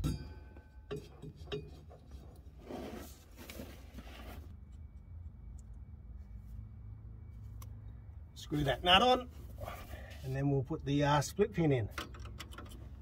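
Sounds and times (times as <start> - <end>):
small metallic clicks: 11.9 - 13.0.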